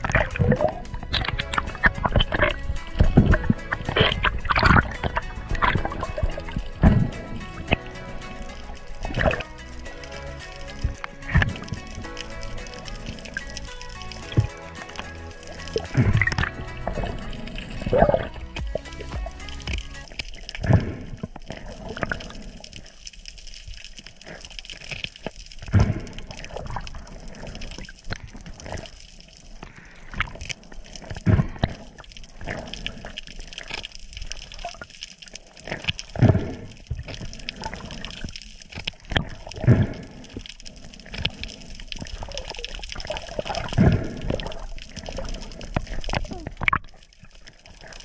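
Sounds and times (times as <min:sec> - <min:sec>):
low gurgling thump: 0:00.0 - 0:07.9, 0:15.7 - 0:20.0
underwater swishing and bubbling: 0:00.0 - 0:48.0.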